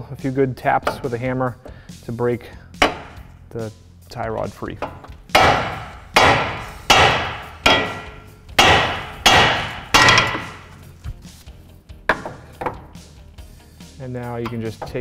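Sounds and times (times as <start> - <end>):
hammer striking metal: 2.8 - 3.2, 4.8 - 10.7.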